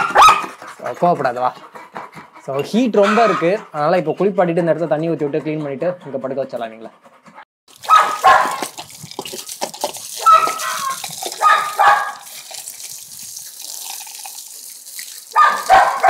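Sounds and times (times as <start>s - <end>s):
water from hose splashing on concrete: 7.7s - 16.0s.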